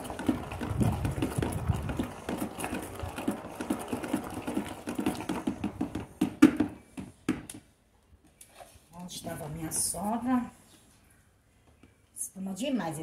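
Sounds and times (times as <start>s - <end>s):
liquid soap sloshing: 0.0s - 7.0s
stick knocking on plastic tub: 0.2s - 7.5s.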